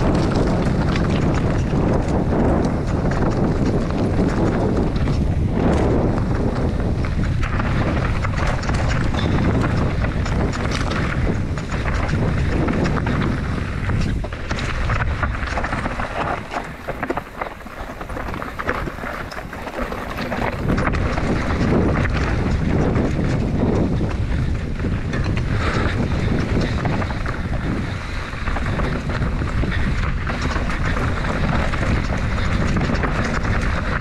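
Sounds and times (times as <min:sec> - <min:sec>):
bike rattling and knocking: 0:00.0 - 0:34.0
wind rushing over microphone: 0:00.0 - 0:34.0
tyres on stone: 0:14.2 - 0:21.2.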